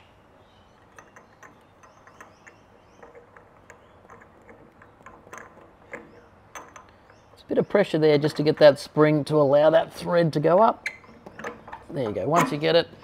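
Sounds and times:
small metallic clicks: 0:00.6 - 0:09.0, 0:10.8 - 0:12.8.

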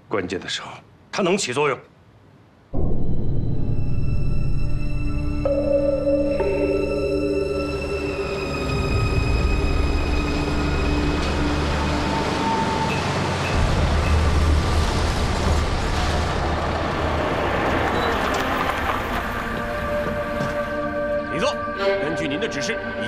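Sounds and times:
background music: 0:02.8 - 0:17.5, 0:18.6 - 0:23.0
vehicle rumbling and rattling: 0:08.6 - 0:20.8.

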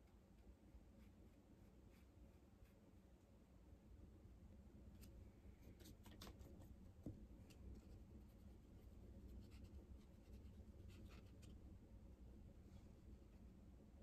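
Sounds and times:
brush stroking on paper: 0:00.0 - 0:03.0, 0:05.0 - 0:11.7.

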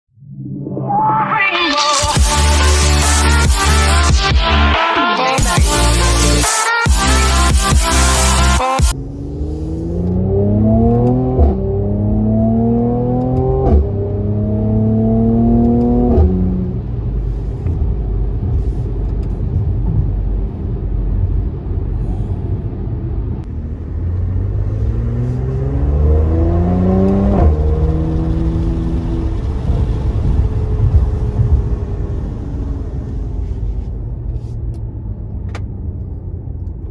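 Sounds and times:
car engine accelerating: 0:01.8 - 0:36.9
exhaust crack on upshift: 0:27.1 - 0:32.4.

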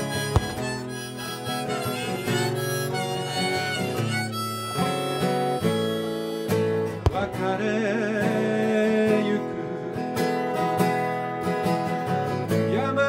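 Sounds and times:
harmonica playing: 0:00.0 - 0:07.3
strummed acoustic guitar: 0:00.0 - 0:13.0.

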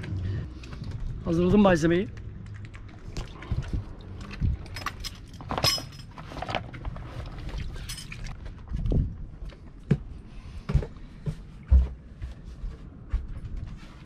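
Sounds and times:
water lapping against hull: 0:02.9 - 0:04.6.

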